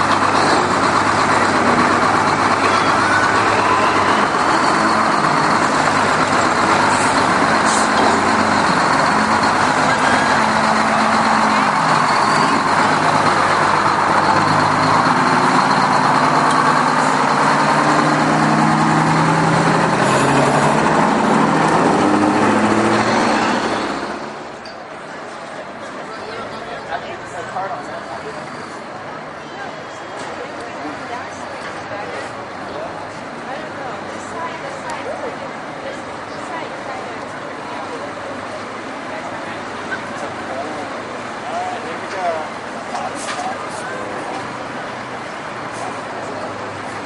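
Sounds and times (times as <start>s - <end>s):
diesel truck engine passing: 0.0s - 47.0s.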